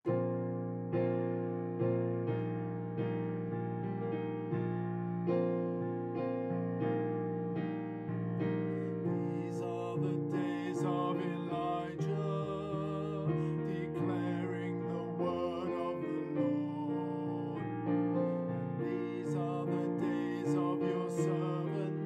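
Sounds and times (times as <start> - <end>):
electric piano chords: 0.0 - 22.0
person singing: 8.7 - 18.0, 18.8 - 22.0.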